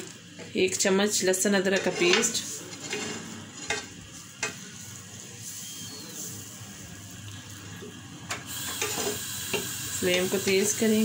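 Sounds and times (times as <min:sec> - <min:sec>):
paste sizzling in oil: 0:08.5 - 0:11.0.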